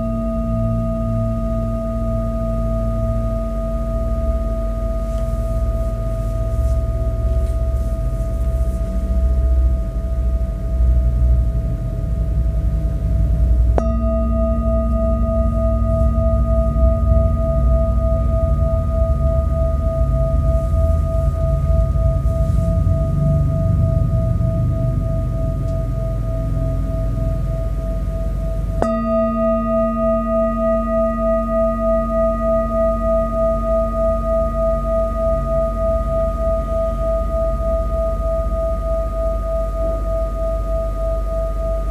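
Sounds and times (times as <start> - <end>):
low rumble: 0.0 - 39.1
metal singing bowl ringing: 0.0 - 41.9
mallet striking singing bowl: 13.8 - 22.2, 25.5 - 40.0.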